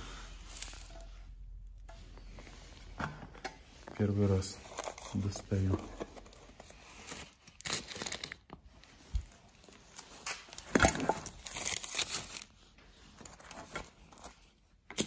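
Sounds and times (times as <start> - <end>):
wrapping paper crinkling: 4.0 - 13.7.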